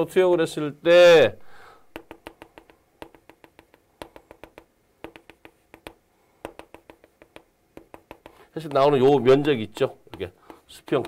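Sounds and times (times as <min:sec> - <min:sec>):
chalk tapping on chalkboard: 0:01.9 - 0:08.8, 0:09.8 - 0:11.0.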